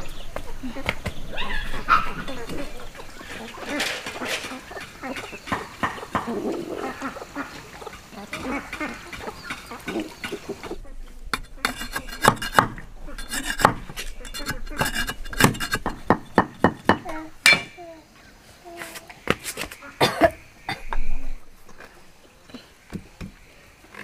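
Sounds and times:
chickens clucking: 0.0s - 24.0s
knife chopping wood on a block: 11.7s - 17.8s.

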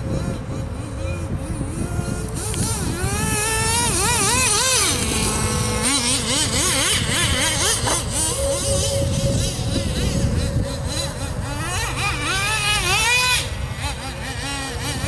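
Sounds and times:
model car engine revving: 0.0s - 15.0s.

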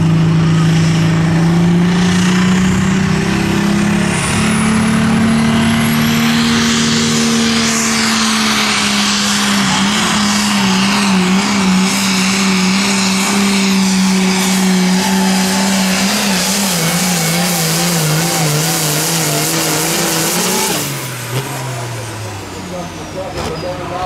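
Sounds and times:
tractor diesel engine under load: 0.0s - 24.0s.

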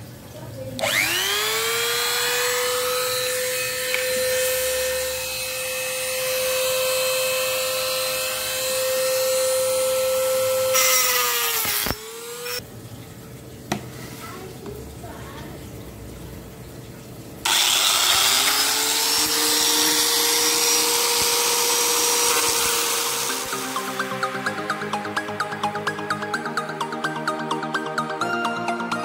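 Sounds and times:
rotary tool whining: 0.8s - 12.6s, 17.5s - 24.0s.

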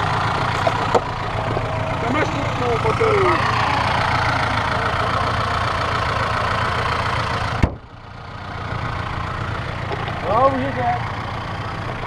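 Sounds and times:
car engine idling: 0.0s - 12.0s
car bonnet slammed shut: 7.6s - 7.8s.

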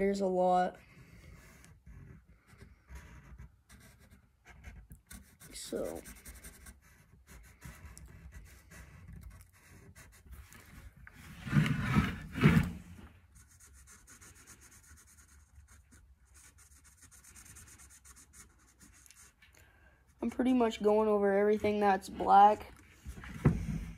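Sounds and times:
marker scratching on wood: 0.7s - 10.9s, 13.3s - 19.4s.

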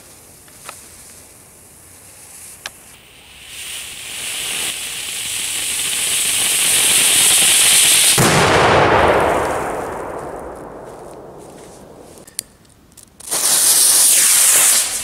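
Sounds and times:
firework fountain hissing: 1.8s - 8.4s, 13.2s - 15.0s.

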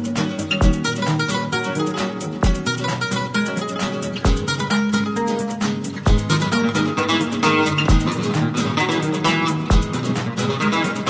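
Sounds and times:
guitar music: 0.0s - 11.0s
deep drum thump: 6.1s - 6.3s.

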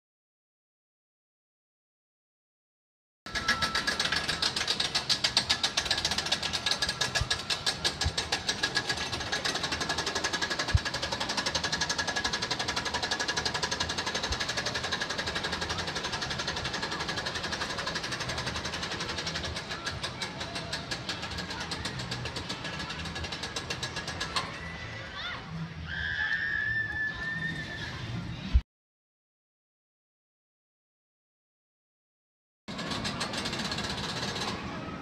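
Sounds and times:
roller coaster lift chain clatter: 3.3s - 25.0s, 32.7s - 35.0s.

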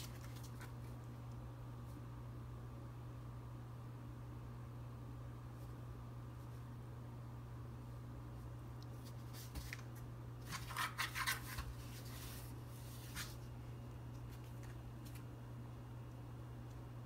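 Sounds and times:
faint low hum: 0.0s - 17.0s
cat scratching cardboard box: 10.5s - 12.4s.

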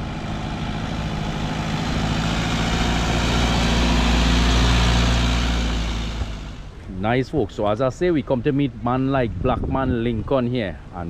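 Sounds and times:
pickup truck diesel engine passing: 0.0s - 9.1s.

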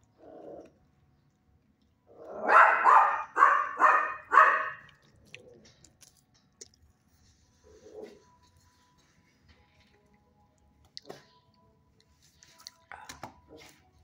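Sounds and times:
dog barking: 2.4s - 4.9s.

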